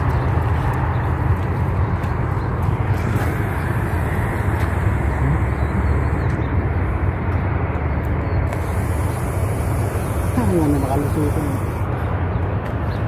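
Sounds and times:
low rumbling noise: 0.0s - 13.0s.

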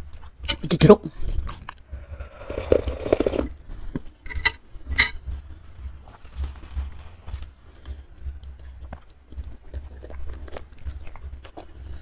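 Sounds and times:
person slurping and gulping soup: 1.9s - 3.6s.

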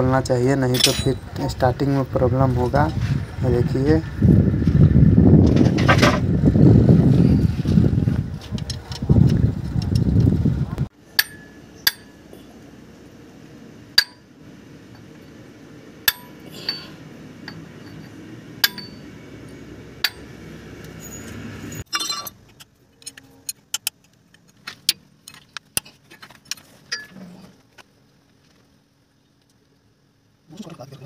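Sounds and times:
steel tools clinking on metal: 0.7s - 1.3s, 11.2s - 12.2s, 16.1s - 20.3s, 21.0s - 22.4s.

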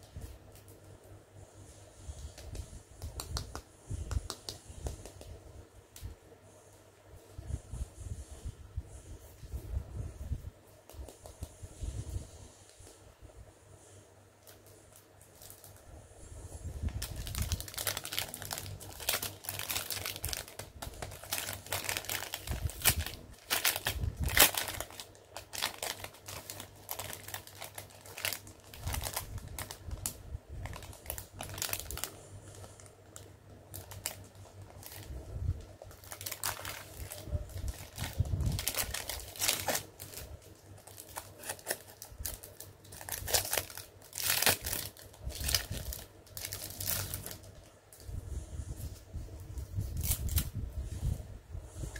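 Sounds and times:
plastic packaging crinkling: 14.4s - 15.8s, 16.8s - 48.0s, 49.8s - 50.6s.

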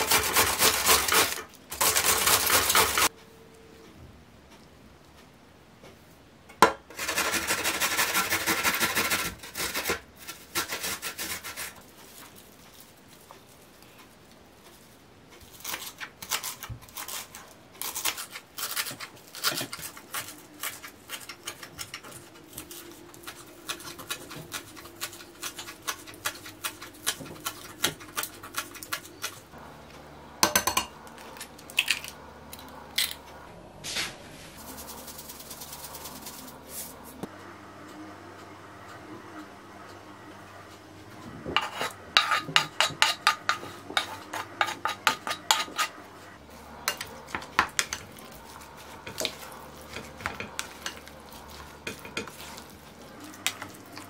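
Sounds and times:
garlic rasping on metal grater: 0.0s - 3.1s, 7.0s - 11.8s, 15.6s - 29.3s.

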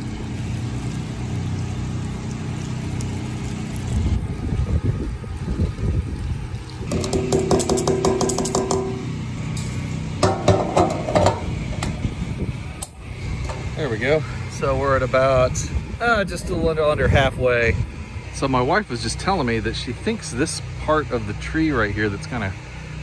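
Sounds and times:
fuel glugging through funnel: 0.0s - 9.4s
steady low hum: 0.0s - 23.0s
fuel cap clicking: 6.8s - 9.1s, 10.2s - 12.0s.

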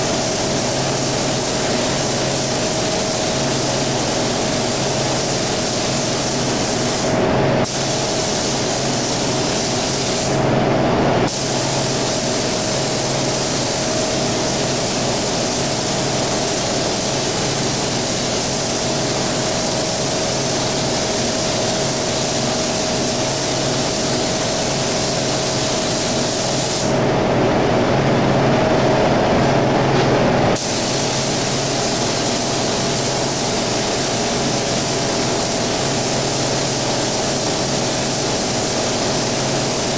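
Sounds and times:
spray gun hissing: 0.0s - 10.4s, 11.3s - 27.0s, 30.6s - 39.9s
machine hum: 26.9s - 31.7s.

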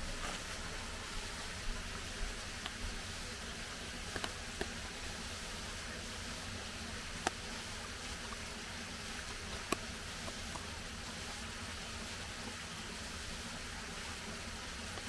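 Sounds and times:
steady hiss: 0.0s - 15.0s
animal eating clicks: 4.0s - 4.8s.

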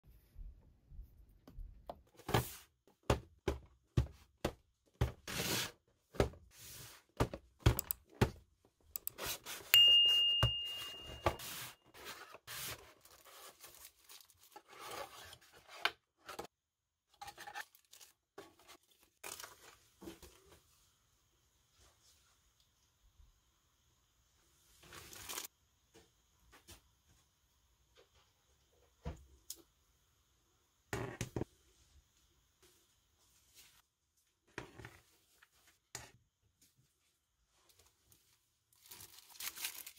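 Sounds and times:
bell-like ding: 9.8s - 11.7s
paper rustling and tearing: 11.9s - 15.8s, 38.8s - 39.9s.

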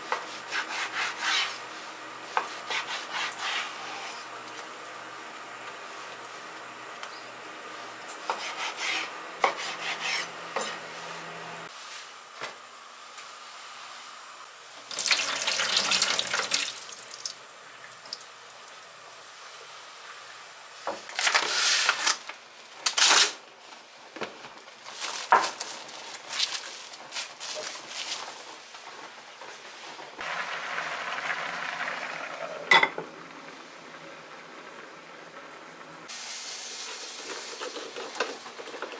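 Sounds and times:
water rushing into sink: 14.9s - 18.2s.

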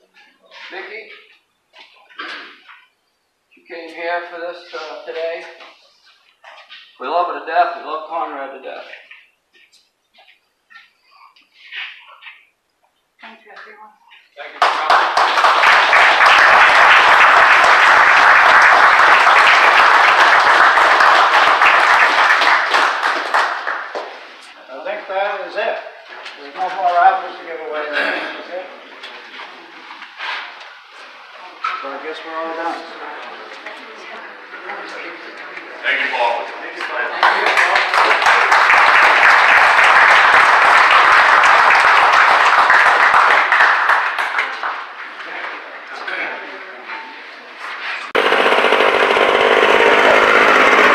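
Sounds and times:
audience applauding: 14.5s - 24.5s, 36.8s - 45.2s, 48.1s - 50.9s.

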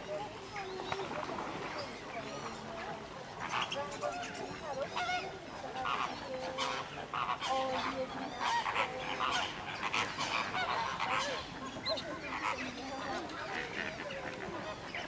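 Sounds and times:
ducks calling: 3.4s - 15.0s
geese honking: 5.0s - 11.6s.

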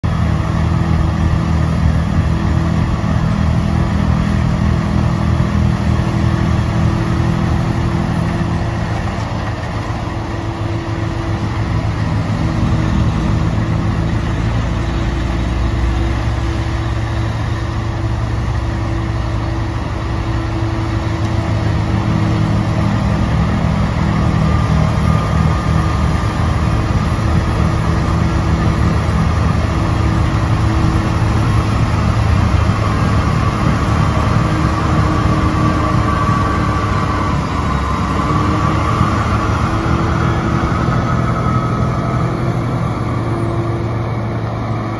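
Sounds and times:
heavy diesel engine drone: 0.0s - 44.9s.

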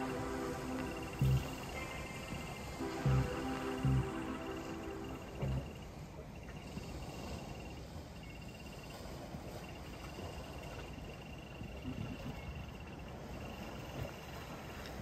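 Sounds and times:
low steady rumble: 0.0s - 6.0s.

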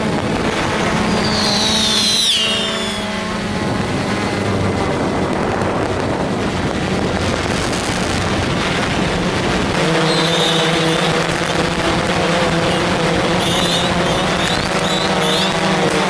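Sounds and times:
drone motors humming: 0.0s - 6.1s
high whine gliding down: 0.1s - 5.1s, 9.9s - 15.7s.

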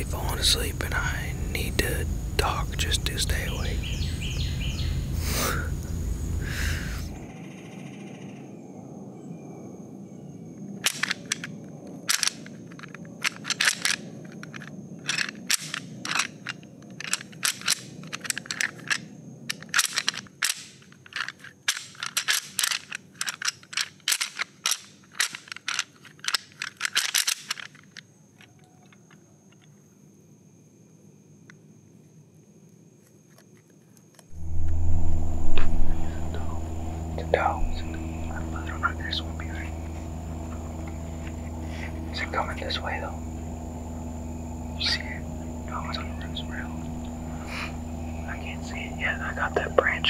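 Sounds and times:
faint steady high tone: 34.3s - 50.0s.

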